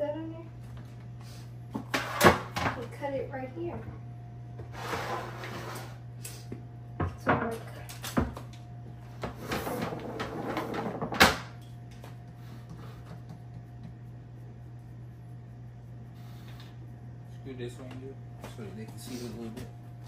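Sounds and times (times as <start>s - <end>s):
steady low hum: 0.0s - 20.0s
objects knocking and clattering: 9.2s - 11.6s.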